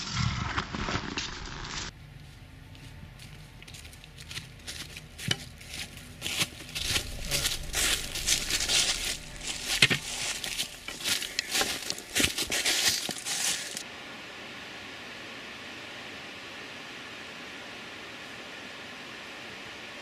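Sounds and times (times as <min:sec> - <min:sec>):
footsteps crunching on dry leaves: 0:01.5 - 0:13.8.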